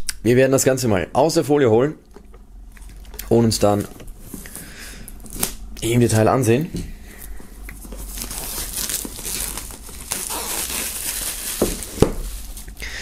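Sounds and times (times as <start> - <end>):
plastic film snapping: 5.2 - 5.7, 7.8 - 12.8
plastic film crinkling: 7.8 - 12.9.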